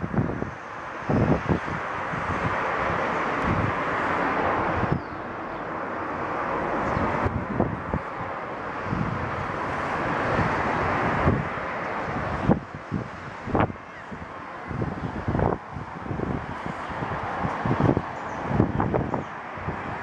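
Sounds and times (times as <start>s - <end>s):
steady wind rushing: 0.0s - 20.0s
wind gusts buffeting microphone: 0.0s - 20.0s.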